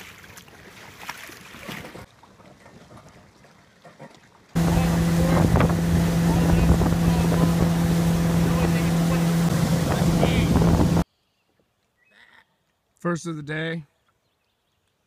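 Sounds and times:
outboard jet motor running: 4.5s - 11.0s
wind on microphone: 4.6s - 11.0s.

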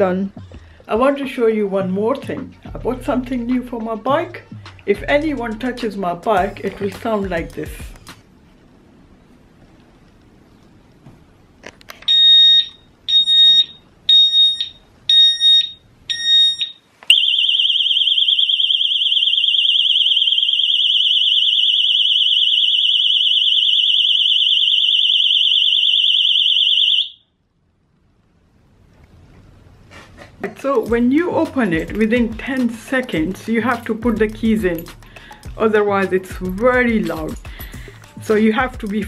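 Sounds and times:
warbling alarm tone: 12.1s - 27.2s.

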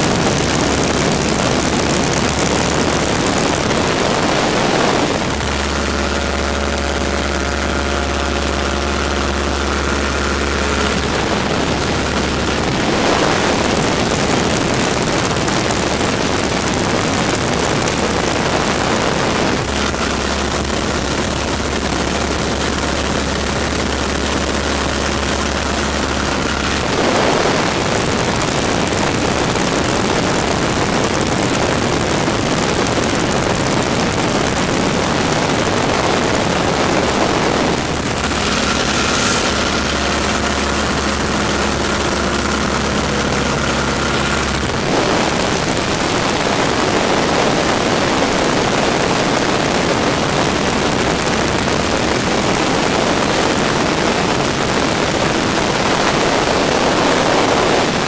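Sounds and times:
airplane engine and propeller hum: 0.0s - 58.0s
wind rushing: 10.0s - 15.6s, 26.4s - 30.0s, 33.8s - 51.1s.

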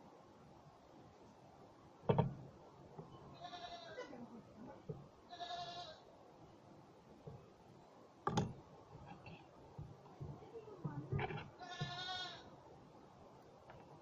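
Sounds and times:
goat bleating: 3.3s - 4.2s, 5.3s - 6.0s, 11.2s - 12.5s.

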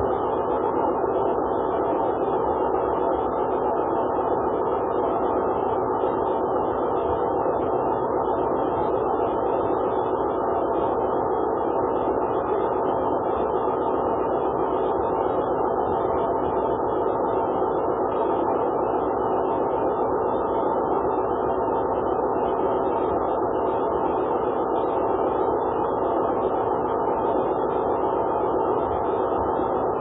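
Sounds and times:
faint hum: 0.0s - 30.0s.

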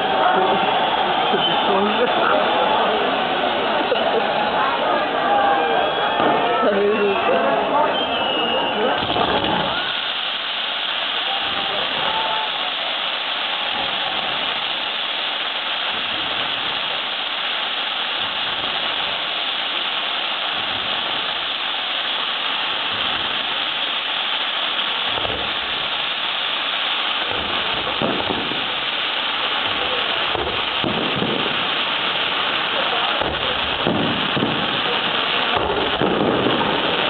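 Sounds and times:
fireworks crackling hiss: 0.0s - 37.0s
low thuds of firework bursts: 8.2s - 37.0s.

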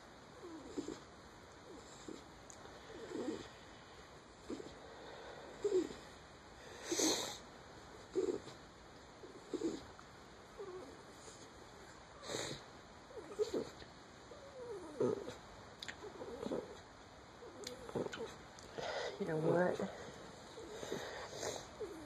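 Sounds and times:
dog labored breathing with moans: 0.4s - 3.7s, 4.4s - 7.4s, 8.0s - 8.6s, 9.2s - 9.9s, 10.6s - 15.4s, 16.0s - 22.0s.

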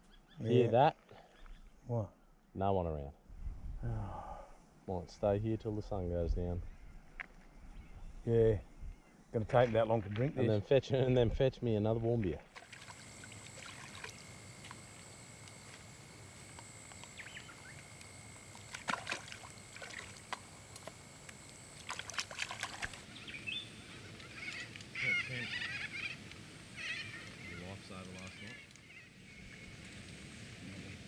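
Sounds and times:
water splashing: 12.3s - 23.1s
high thin whine: 12.6s - 23.0s
birds squawking and chattering: 12.9s - 18.6s, 22.8s - 30.0s.

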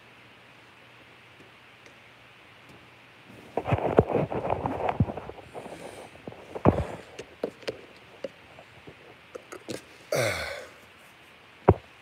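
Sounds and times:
phone handling clicks and rustles: 3.6s - 9.9s.

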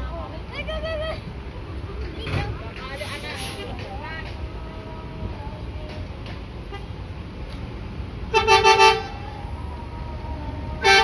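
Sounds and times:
bus engines rumbling: 0.0s - 11.0s
musical air horn blasts: 8.3s - 9.1s, 10.8s - 11.0s.

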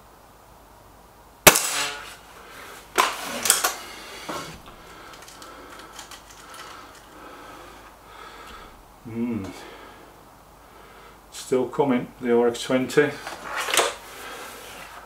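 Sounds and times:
air rifle shot ringing: 1.4s - 2.2s
small handling clicks: 5.1s - 7.2s.

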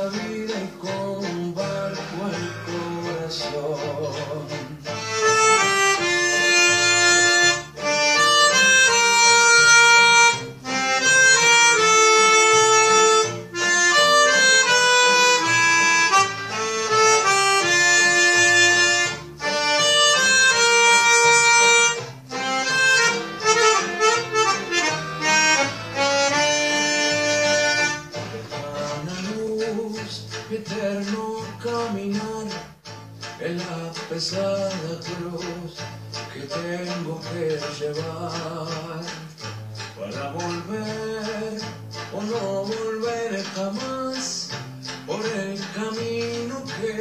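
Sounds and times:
melodica playing melody: 0.0s - 30.0s
quiet musical accompaniment: 0.0s - 47.0s.

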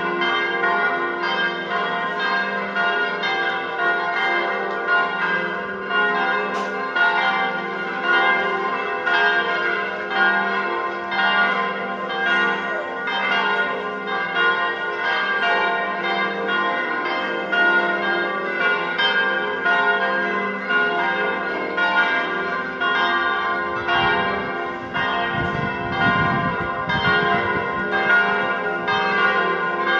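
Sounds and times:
church bells pealing: 0.0s - 29.9s.

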